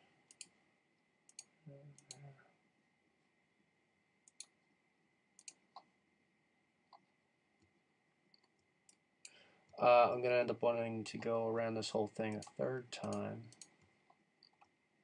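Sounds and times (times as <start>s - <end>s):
computer mouse clicks: 0.3s - 0.6s, 1.3s - 2.3s, 4.2s - 4.6s, 5.4s - 5.9s, 6.9s - 9.4s, 12.3s - 14.8s.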